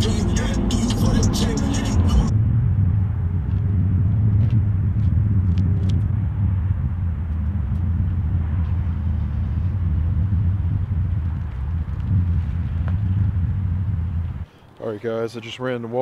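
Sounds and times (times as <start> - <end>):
pickup truck engine rumbling: 0.0 - 14.5.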